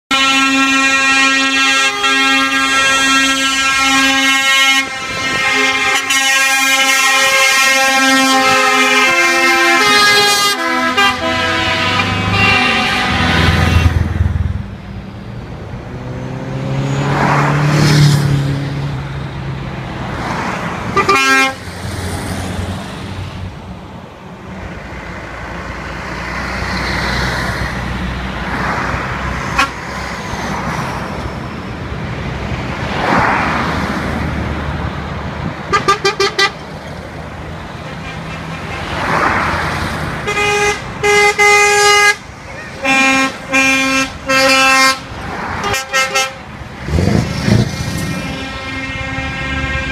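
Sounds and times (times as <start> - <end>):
truck horn blasts: 0.1 - 14.4, 20.9 - 21.6, 29.4 - 30.0, 35.7 - 36.7, 37.8 - 39.4, 40.2 - 49.9
lorries passing: 0.1 - 49.9.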